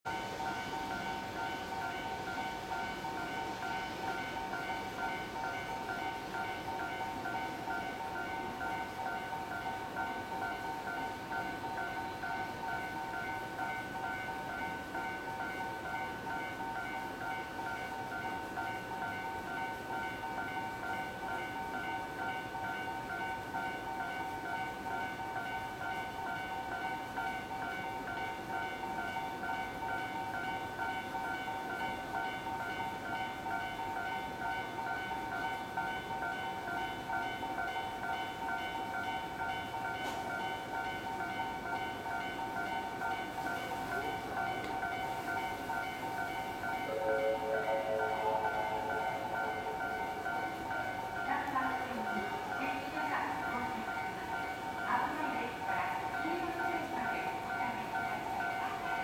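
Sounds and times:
railway warning tone pulsing: 0.1s - 59.0s
electric train running: 33.6s - 59.0s.

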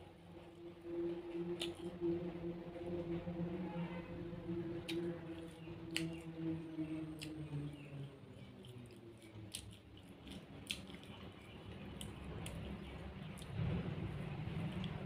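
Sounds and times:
chewing food: 1.5s - 2.0s, 4.8s - 15.0s.

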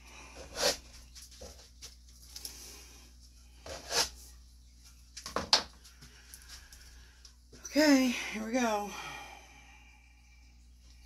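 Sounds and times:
plastic cups being set down: 5.2s - 6.1s.

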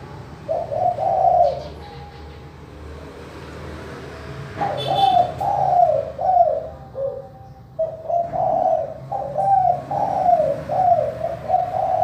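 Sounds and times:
dove cooing: 0.4s - 2.3s, 4.6s - 12.0s.

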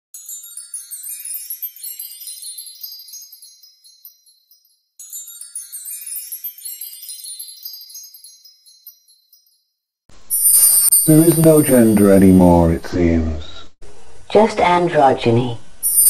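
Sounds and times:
high tinkling magic chimes: 0.2s - 12.3s.

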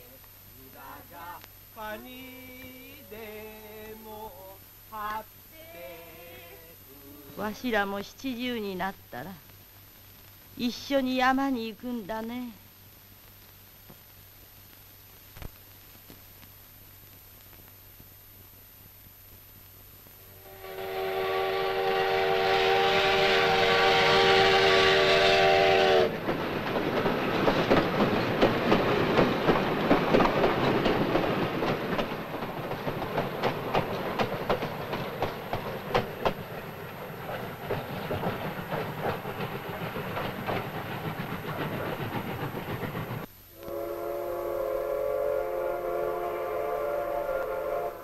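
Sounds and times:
steam locomotive whistle: 20.4s - 26.2s, 43.5s - 48.0s
train rattling on rails: 22.7s - 43.3s.

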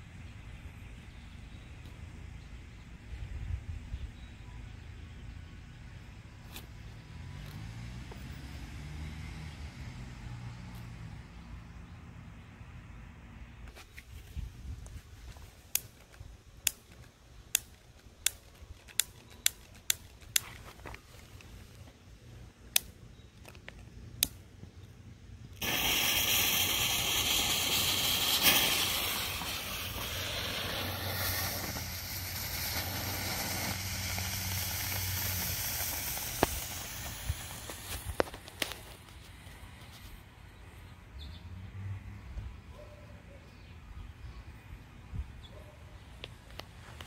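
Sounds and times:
loud hiss of smoke: 25.5s - 40.0s.

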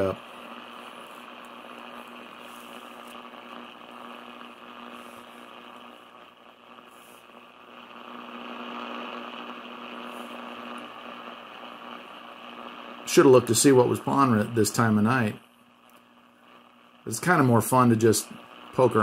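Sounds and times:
radio static hiss: 0.0s - 19.0s
steady low hum: 0.0s - 19.0s.

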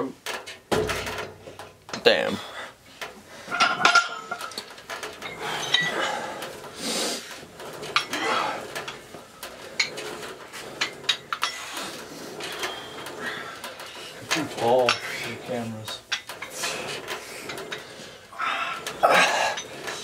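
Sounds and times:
metal gym equipment clanking: 0.0s - 20.0s.

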